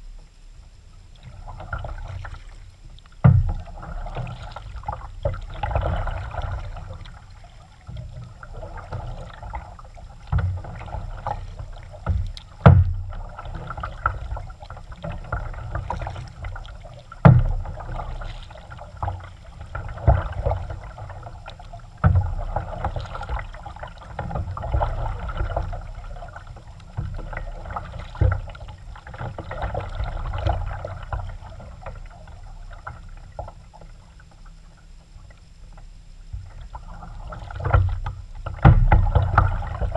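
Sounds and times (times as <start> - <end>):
paddle splashing in water: 1.2 - 34.4, 36.3 - 39.9.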